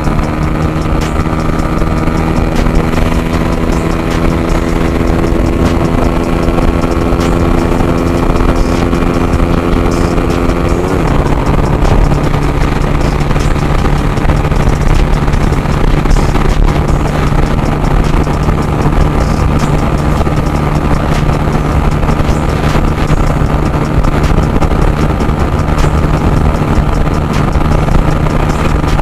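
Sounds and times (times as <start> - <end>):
motorcycle engine at full throttle: 0.0 - 29.0.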